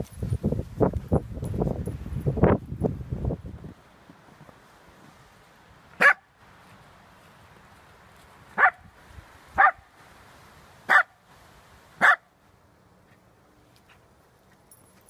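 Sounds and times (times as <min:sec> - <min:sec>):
dog barking: 0:06.0 - 0:06.3, 0:08.6 - 0:08.8, 0:09.6 - 0:09.9, 0:10.9 - 0:11.2, 0:12.0 - 0:12.3.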